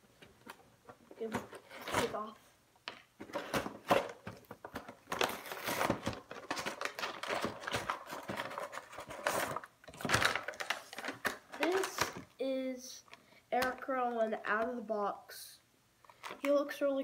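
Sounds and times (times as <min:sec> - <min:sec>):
cardboard ripping: 0:01.3 - 0:02.3, 0:05.1 - 0:11.9
packaging crinkling: 0:03.2 - 0:12.2.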